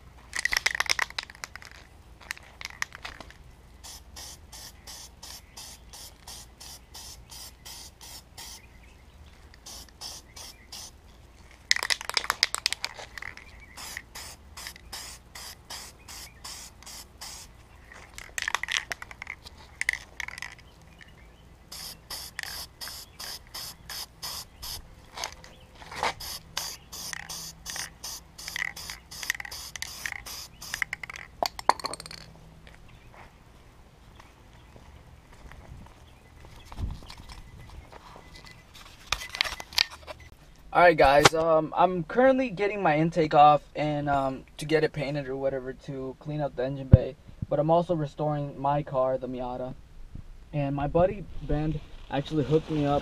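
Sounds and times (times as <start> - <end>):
spray can ball rattling: 0.3 - 8.6, 9.4 - 21.1, 21.7 - 24.8, 25.9 - 32.8
spray hiss: 3.8 - 8.7, 9.6 - 11.0, 13.6 - 17.6, 21.7 - 24.8, 26.2 - 31.0.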